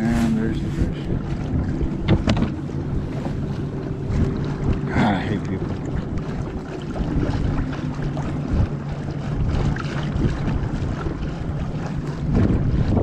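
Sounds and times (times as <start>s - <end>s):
boat motor droning: 0.0s - 13.0s
wind buffeting microphone: 0.0s - 13.0s.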